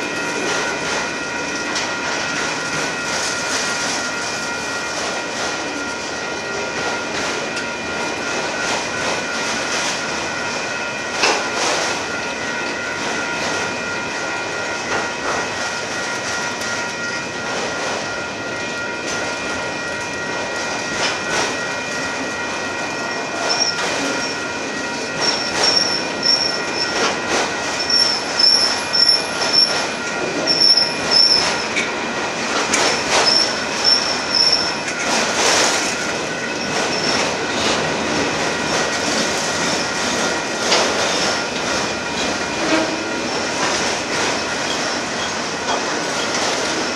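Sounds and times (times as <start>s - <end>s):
wheels clacking on rails: 0.0s - 46.9s
train wheels squealing: 23.0s - 31.8s, 32.7s - 37.8s.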